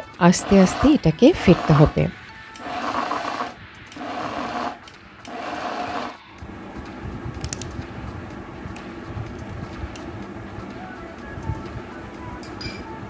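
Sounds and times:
low hum: 0.0s - 13.0s
blender pulsing: 0.2s - 6.2s.

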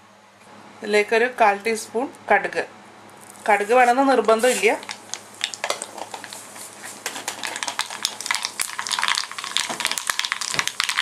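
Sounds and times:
seeds sizzling and popping in oil: 3.1s - 11.0s.

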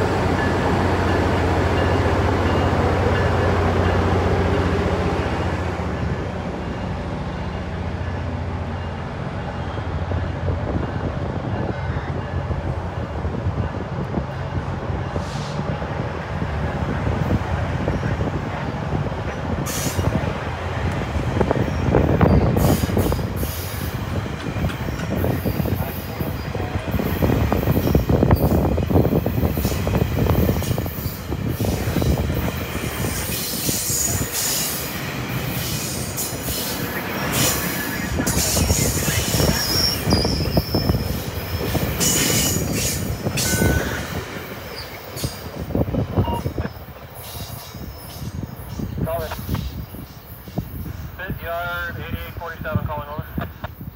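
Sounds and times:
train wheels rumbling on rails: 0.0s - 53.9s
high wheel squeals: 35.5s - 45.5s.

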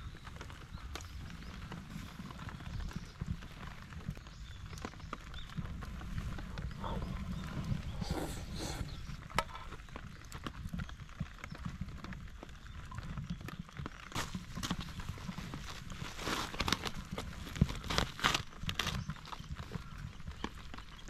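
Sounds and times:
low rumble: 5.6s - 9.7s.

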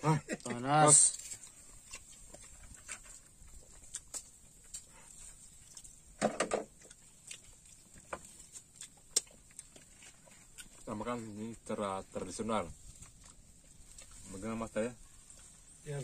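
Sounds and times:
lip smacks and chewing: 1.2s - 11.0s, 12.8s - 14.3s.

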